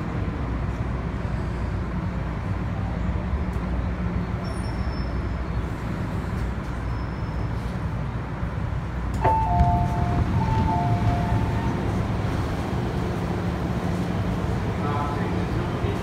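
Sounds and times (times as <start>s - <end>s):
train wheels rumbling: 8.8s - 16.0s.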